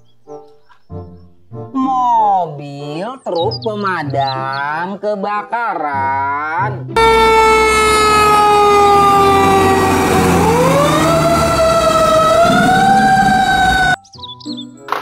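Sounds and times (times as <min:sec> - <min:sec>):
fire engine siren wailing: 0:07.0 - 0:14.0.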